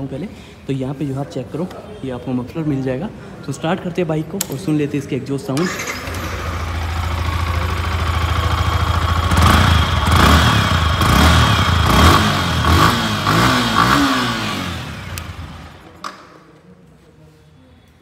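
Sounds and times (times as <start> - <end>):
motorcycle engine revving: 5.6 - 15.8.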